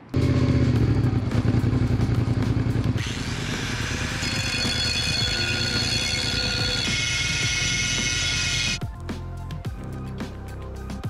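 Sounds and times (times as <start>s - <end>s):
motorcycle engine running: 0.0s - 8.8s
angle grinder grinding metal: 3.0s - 8.8s.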